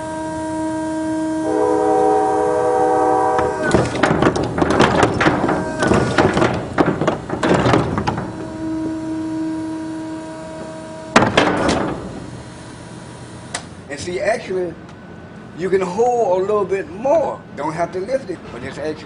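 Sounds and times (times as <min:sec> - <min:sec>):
lift motor humming: 0:00.0 - 0:13.9
lift and cart rattling: 0:03.2 - 0:12.6
trash clattering into dumpster: 0:03.4 - 0:08.9, 0:11.1 - 0:12.3.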